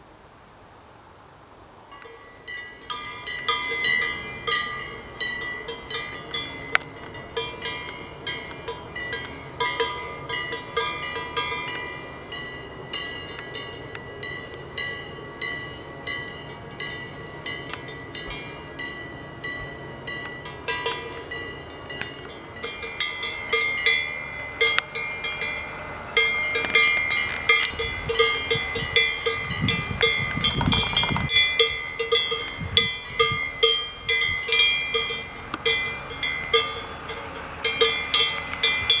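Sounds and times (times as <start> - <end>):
cowbell clanking: 2.0 - 39.0.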